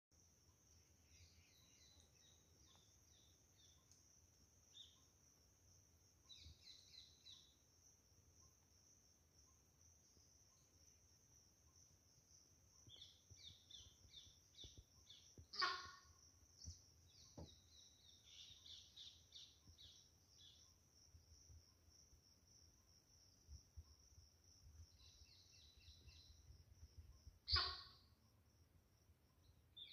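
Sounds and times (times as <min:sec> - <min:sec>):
small birds chirping: 0:00.2 - 0:29.9
deer alarm call: 0:15.6 - 0:16.1.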